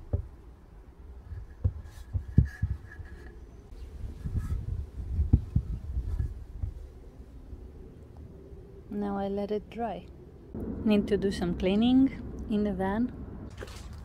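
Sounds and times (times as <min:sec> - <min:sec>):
dull thumps: 0:01.6 - 0:02.9
handling noise rumbling: 0:10.2 - 0:14.0.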